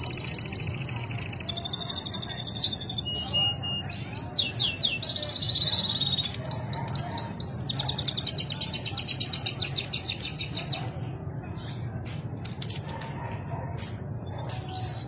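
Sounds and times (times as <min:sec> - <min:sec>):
canary singing: 0:00.0 - 0:11.0.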